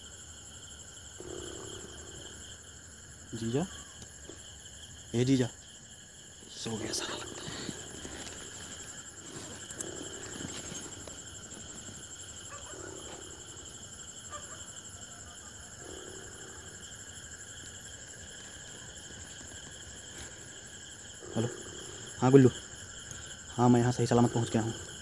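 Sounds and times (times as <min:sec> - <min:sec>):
crickets chirring: 0:00.0 - 0:25.0
faint soft rustles: 0:06.5 - 0:13.8.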